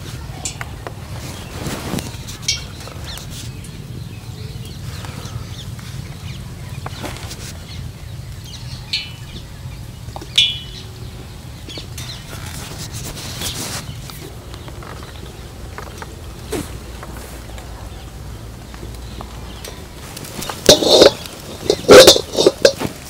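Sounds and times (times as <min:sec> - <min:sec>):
birds calling: 0:00.0 - 0:23.0
steady low rumble: 0:13.9 - 0:23.0.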